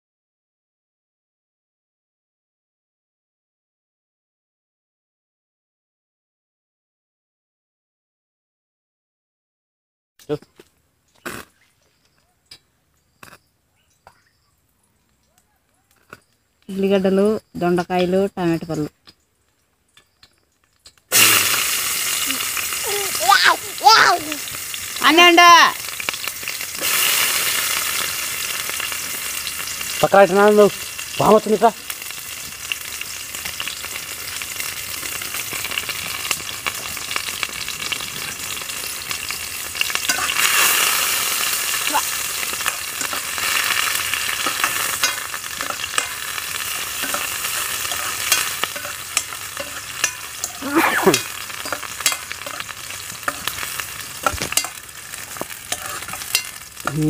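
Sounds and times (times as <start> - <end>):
onions sizzling in oil: 20.9 - 57.0
metal spoon scraping a pan: 37.9 - 41.7, 42.3 - 57.0.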